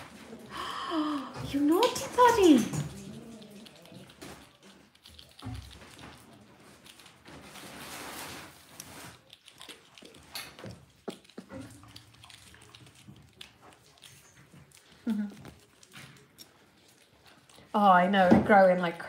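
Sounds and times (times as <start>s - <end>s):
puppy paws clicking on floor: 0.0s - 19.0s
rustling: 1.3s - 17.9s.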